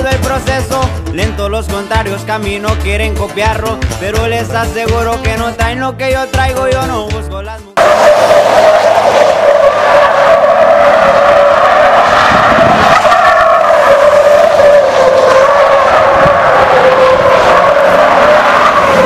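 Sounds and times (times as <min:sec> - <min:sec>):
tires squealing on asphalt: 0:07.8 - 0:19.0.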